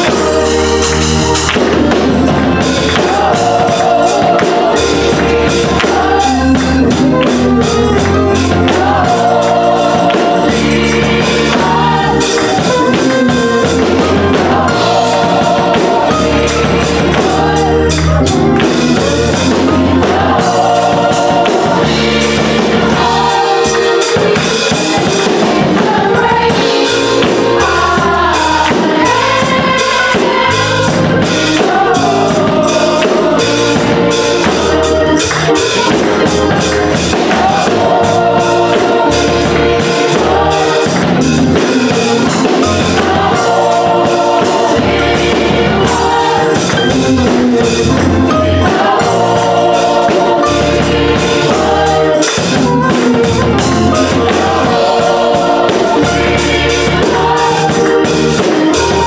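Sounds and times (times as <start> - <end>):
drums beating: 0.0 - 59.0
gospel choir singing: 0.0 - 59.0
live band playing: 0.0 - 59.0.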